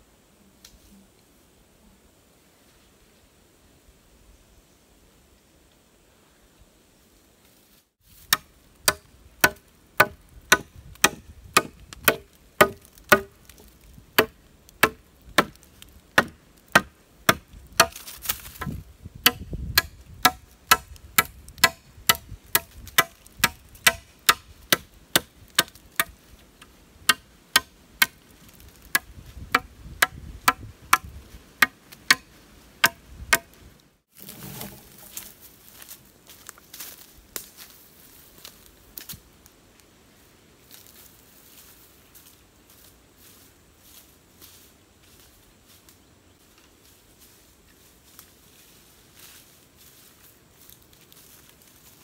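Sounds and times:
machete chopping a branch: 0:08.2 - 0:26.2, 0:27.1 - 0:33.6
short rustle: 0:34.0 - 0:39.2.

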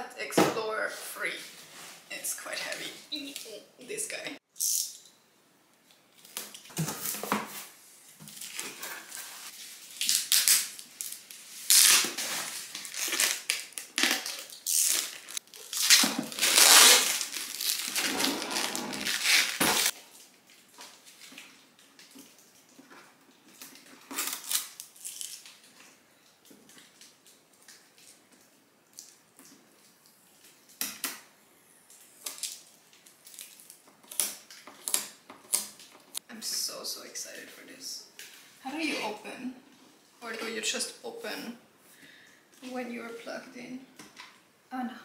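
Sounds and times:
plastic packaging crinkling: 0:08.2 - 0:22.2, 0:23.5 - 0:26.0, 0:32.2 - 0:36.0.

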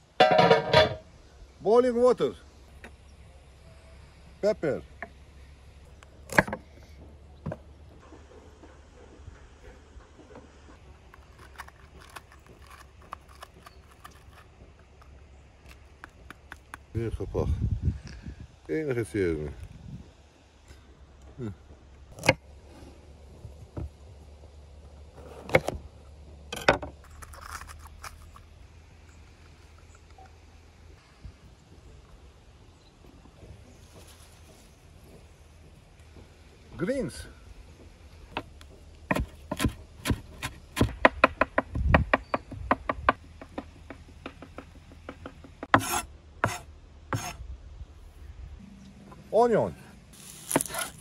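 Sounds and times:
knife crunching through peppers: 0:11.1 - 0:16.8, 0:27.0 - 0:28.5, 0:50.2 - 0:51.0
knife chopping on wooden board: 0:39.1 - 0:42.3, 0:43.4 - 0:47.4
knife scraping board: 0:45.8 - 0:47.4, 0:50.2 - 0:51.0.

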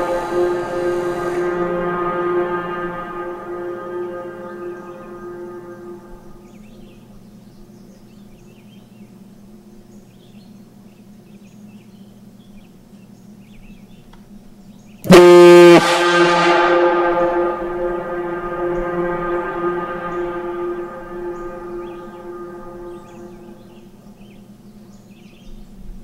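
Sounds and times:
deep compressed-air horn blast: 0:00.0 - 0:08.2, 0:15.0 - 0:24.6.

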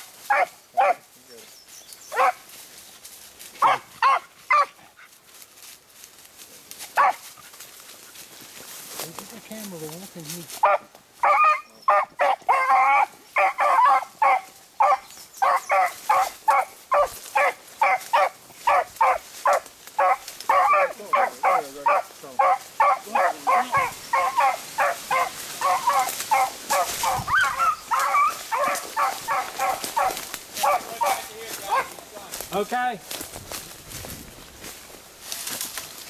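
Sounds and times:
hounds baying: 0:00.0 - 0:01.1, 0:02.1 - 0:02.6, 0:03.5 - 0:05.2, 0:06.8 - 0:08.3, 0:10.5 - 0:32.3.

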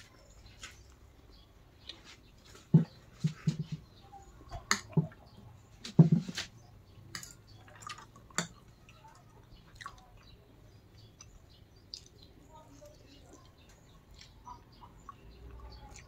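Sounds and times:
wet eating sounds: 0:07.1 - 0:16.0.

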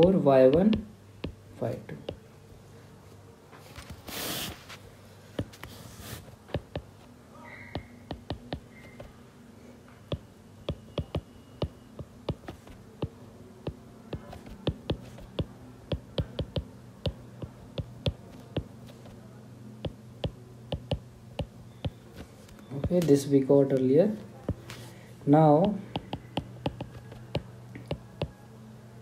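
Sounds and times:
stylus tapping on tablet: 0:00.0 - 0:01.4, 0:06.5 - 0:07.0, 0:07.7 - 0:09.1, 0:10.1 - 0:19.2, 0:19.8 - 0:22.0, 0:24.5 - 0:24.7, 0:25.6 - 0:28.4
faint steady hum: 0:00.0 - 0:29.0.

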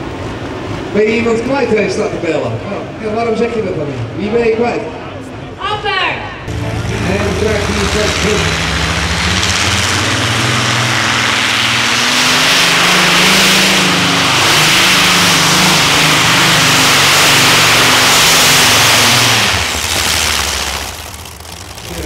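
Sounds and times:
pulling tractor engines under load: 0:15.9 - 0:22.0.

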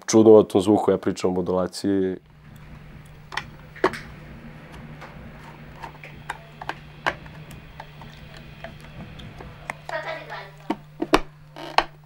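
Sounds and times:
low hum: 0:02.2 - 0:12.0.

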